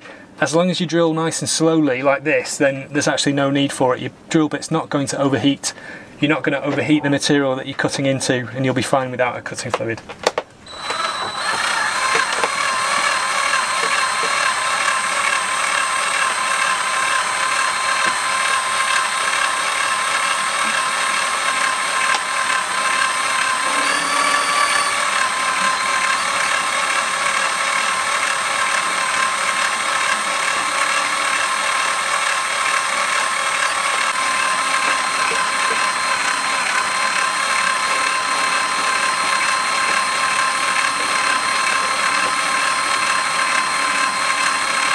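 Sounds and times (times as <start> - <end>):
drill motor whine: 10.7 - 44.9.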